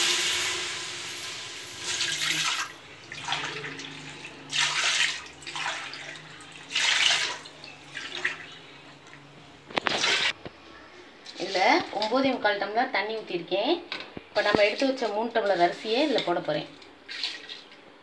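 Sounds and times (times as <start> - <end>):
water splashing into a pot: 0.0 - 8.6.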